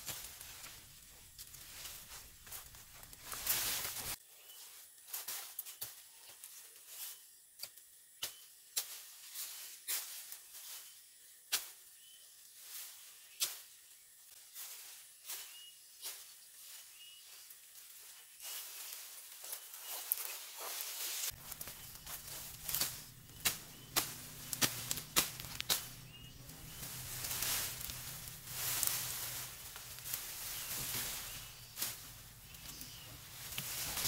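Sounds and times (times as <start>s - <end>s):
rustle of dry brush: 0.0s - 7.4s, 8.3s - 34.0s
machete chopping dry grass: 11.5s - 11.8s, 21.4s - 29.5s.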